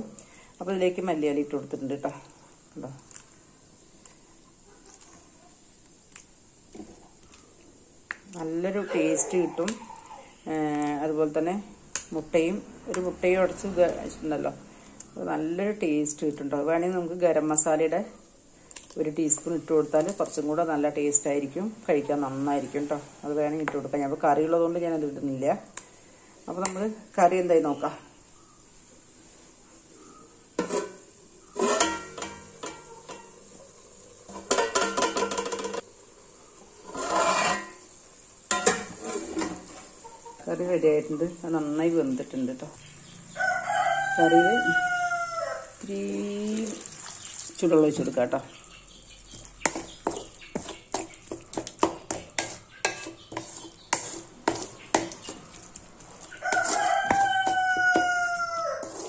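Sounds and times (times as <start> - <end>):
pans clanking on stove: 30.6 - 31.0, 31.6 - 33.4, 34.3 - 35.9, 38.5 - 39.9
pans clinking: 31.6 - 33.4, 34.3 - 35.9, 38.5 - 39.9, 49.4 - 55.6
rooster crowing: 43.2 - 45.8, 56.3 - 59.0.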